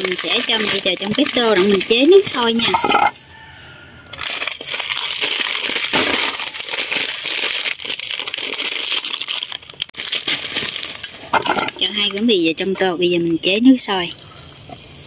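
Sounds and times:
plastic packet crinkling: 0.0s - 3.2s, 4.2s - 12.3s.

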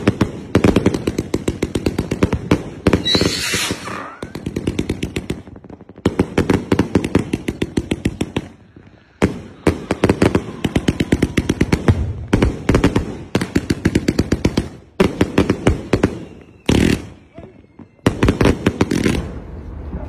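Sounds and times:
fireworks bangs: 0.0s - 20.0s.

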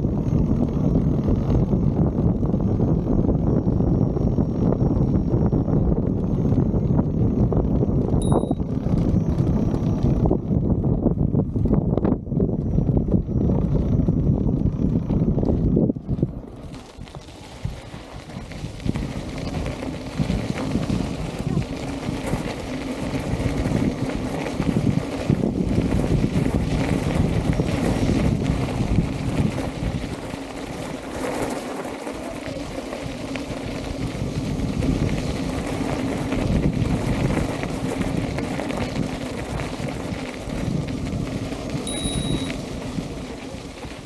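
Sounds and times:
steady low hum: 0.0s - 44.0s
wheel rumbling on gravel: 0.0s - 44.0s
wind buffeting microphone: 0.0s - 44.0s
high beep: 8.2s - 8.6s, 41.9s - 42.6s.

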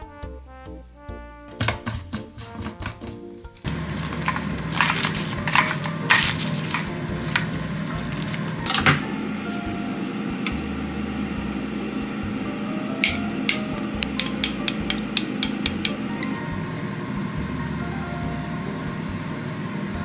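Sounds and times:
wet paper crinkling: 3.6s - 9.8s
low hum: 3.7s - 20.0s.

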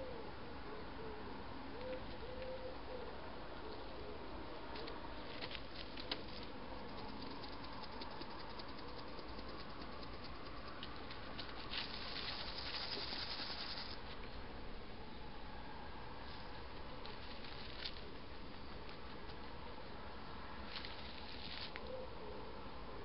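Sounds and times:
hedgehog rustling in straw: 11.4s - 14.1s.

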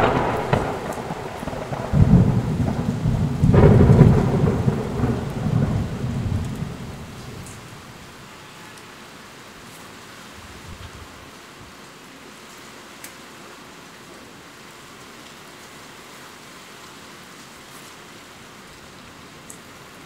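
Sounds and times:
thunder rumbling and cracking: 0.0s - 8.0s
steady rain: 0.0s - 20.0s.

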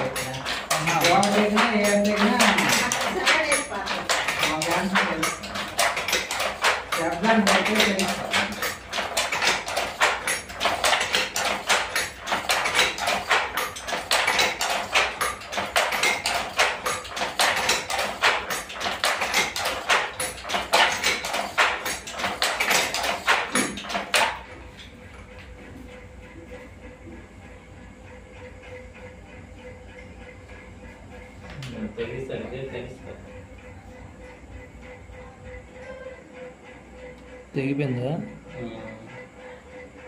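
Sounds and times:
wooden handloom clacking: 0.0s - 25.0s.

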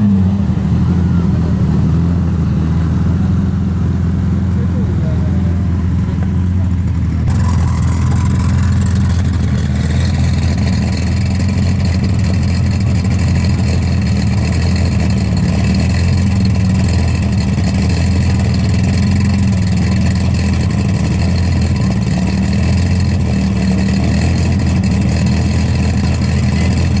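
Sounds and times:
car engine idling: 0.0s - 27.0s.

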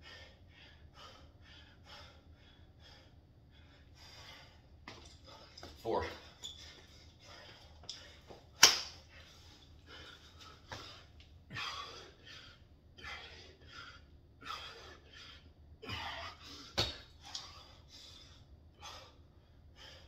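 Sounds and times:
man breathing hard: 0.0s - 20.0s.

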